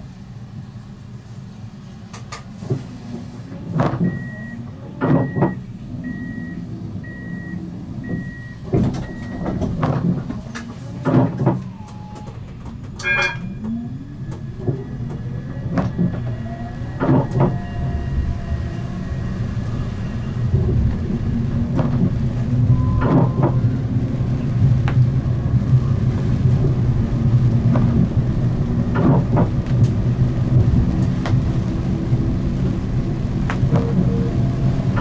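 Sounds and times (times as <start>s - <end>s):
tram door warning beeps: 4.0s - 18.7s, 22.6s - 23.9s, 33.6s - 35.0s
tram running gear clunks: 8.0s - 17.7s, 19.8s - 23.7s, 28.8s - 30.0s.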